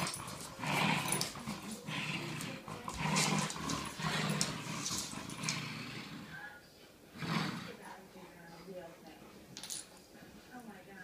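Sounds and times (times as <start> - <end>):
dogs growling: 0.0 - 6.5, 7.1 - 7.9.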